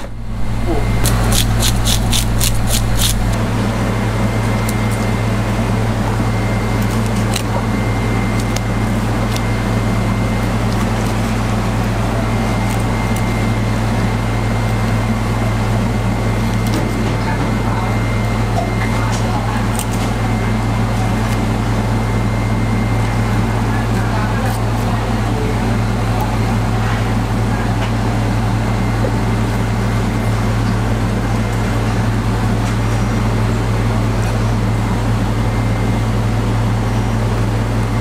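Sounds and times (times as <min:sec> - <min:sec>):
low machine hum: 0:00.0 - 0:38.0
fish scaler scraping fish skin: 0:00.8 - 0:03.4.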